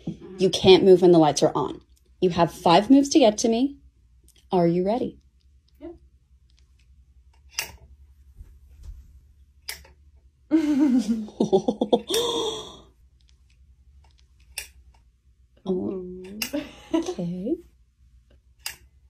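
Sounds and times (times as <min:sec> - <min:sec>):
sharp clicks: 0:18.3 - 0:19.0.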